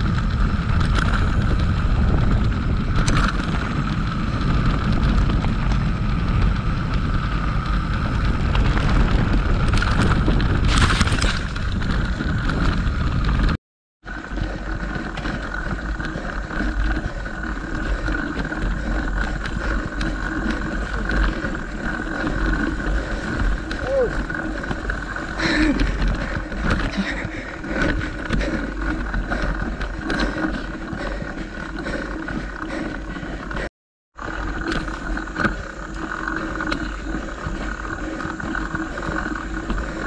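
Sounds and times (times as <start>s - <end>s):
wind on microphone: 0.0s - 13.6s
bike rattle: 0.0s - 40.0s.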